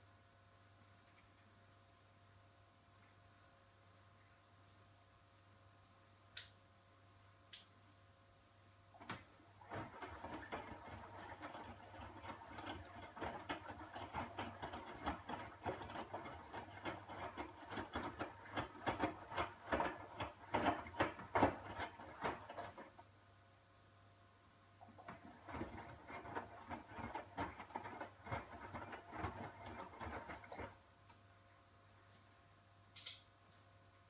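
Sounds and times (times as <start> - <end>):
wet laundry sloshing in washer drum: 9.4 - 23.0, 24.8 - 30.8.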